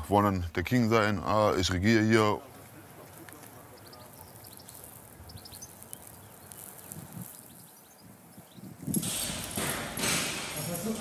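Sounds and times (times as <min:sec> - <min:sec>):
small birds chirping: 0:02.4 - 0:09.0.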